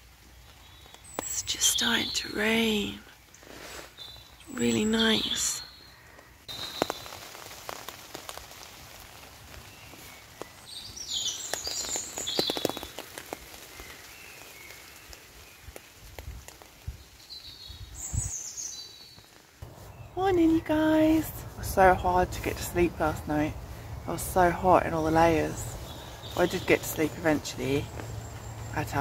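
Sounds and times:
rain dripping on a tarp: 0.0 - 29.0
bird chirping: 3.9 - 7.2, 17.2 - 29.0.

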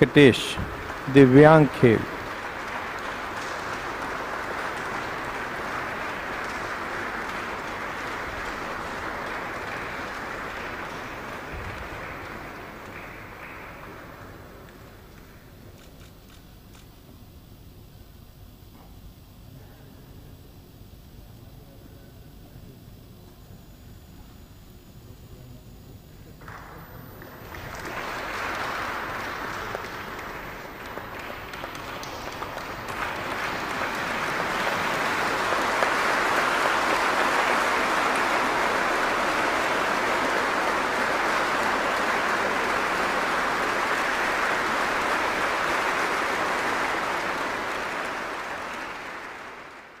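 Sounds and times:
audience applauding: 0.0 - 15.3, 26.4 - 50.0.

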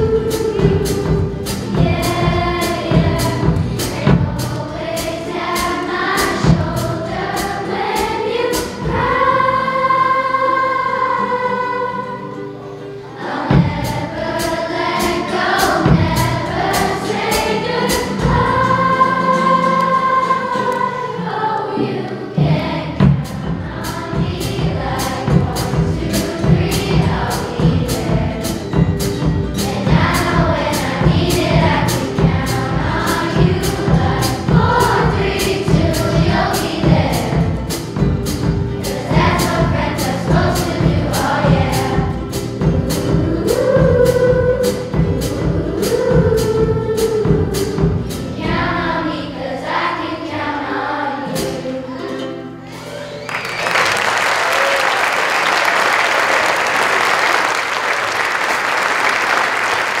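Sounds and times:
drum kit beat: 0.0 - 10.0, 13.3 - 20.8, 22.4 - 49.0
children's choir singing: 0.0 - 60.0
audience applause: 53.2 - 60.0.

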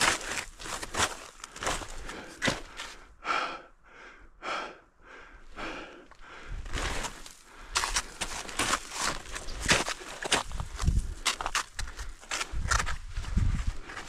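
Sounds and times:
snowshoe steps crunching in snow: 0.0 - 2.7, 6.7 - 11.7
person breathing hard: 1.4 - 8.4.

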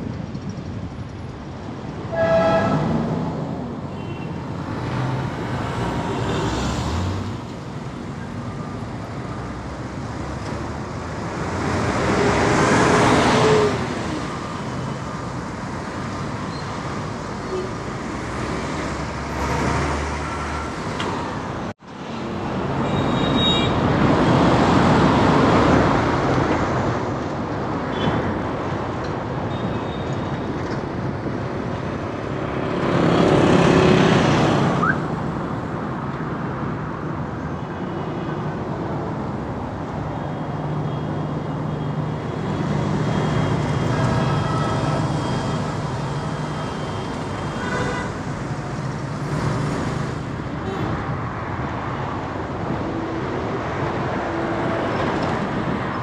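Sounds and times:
vehicles passing close: 0.0 - 29.5, 30.1 - 56.0
highway traffic: 0.0 - 56.0.

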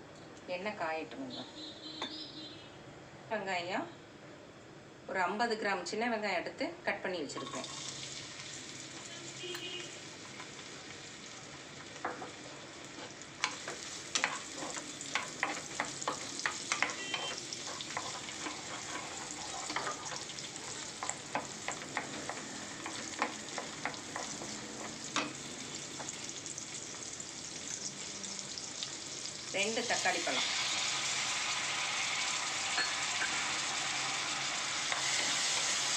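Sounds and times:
shallots sizzling in oil: 7.2 - 35.9
wooden spatula scraping pan: 12.5 - 25.4.

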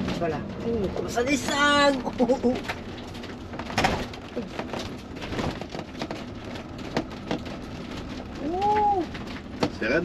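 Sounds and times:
tyres crackling on rough ground: 0.0 - 10.0
van engine low rumble: 0.0 - 10.0.

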